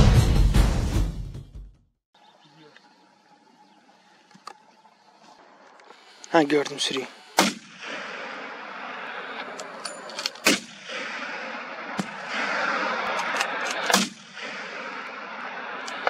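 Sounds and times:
gunshots: 0:07.4 - 0:16.0.

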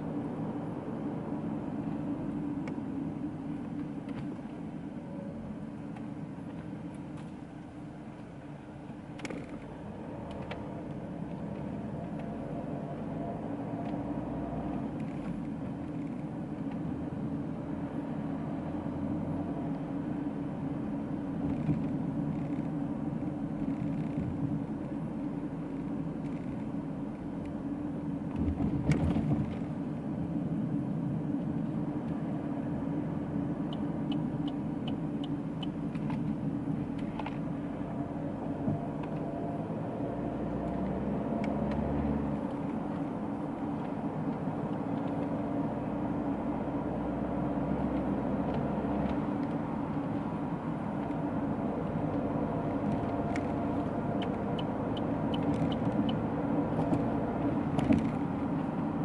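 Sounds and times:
car engine drone: 0:00.0 - 0:59.0
tyre and road noise: 0:00.0 - 0:59.0.

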